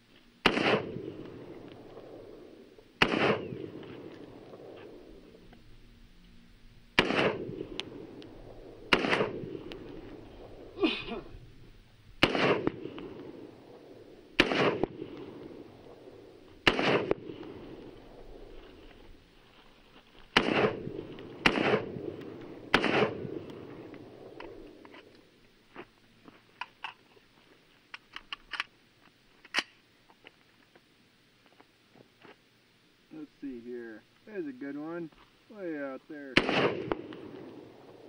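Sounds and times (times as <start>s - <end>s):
rifle shots with echo: 0.4s - 5.3s, 7.0s - 10.7s, 12.2s - 18.5s, 20.3s - 24.8s, 36.2s - 38.0s.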